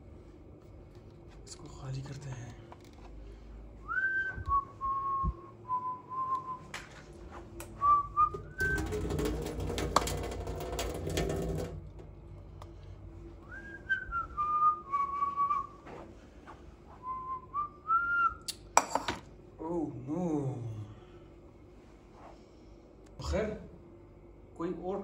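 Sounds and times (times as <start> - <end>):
person whistling: 3.8 - 6.8, 7.8 - 8.9, 13.4 - 15.8, 17.0 - 18.6.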